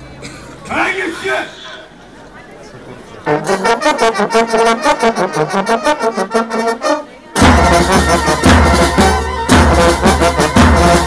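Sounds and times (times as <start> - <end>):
military band playing a march: 3.3 - 11.0.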